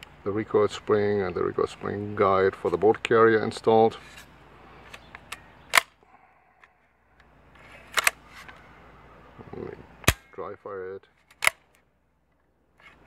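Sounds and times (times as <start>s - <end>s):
rifle action clicking: 11.3s - 11.6s.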